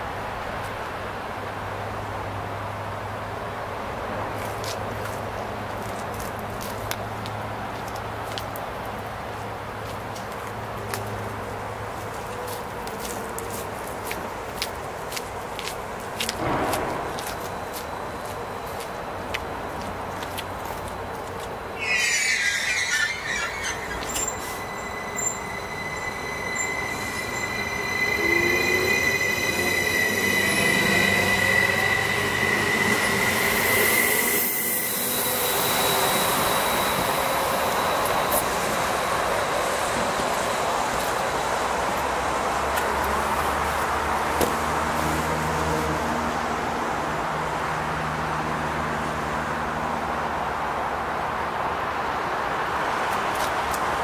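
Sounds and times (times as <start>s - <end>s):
wheels rushing on rail: 0.0s - 54.0s
electric train motors whining: 21.2s - 41.1s.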